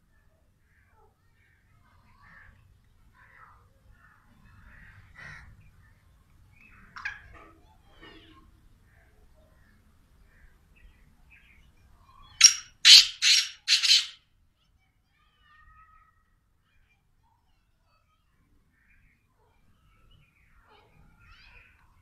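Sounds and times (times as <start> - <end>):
faint bird chirps: 0.0 - 22.0
bird harsh grating call: 12.4 - 14.2.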